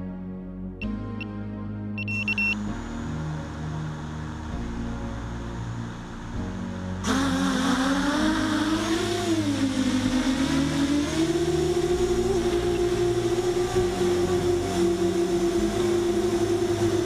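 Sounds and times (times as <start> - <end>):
quadcopter motors whining: 7.0 - 17.0.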